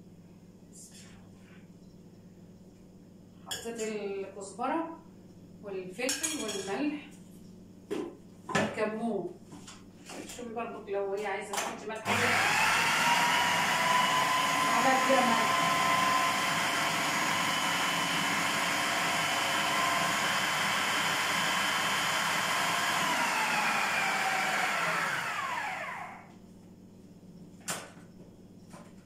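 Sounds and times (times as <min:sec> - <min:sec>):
blender motor grinding: 0:12.0 - 0:26.3.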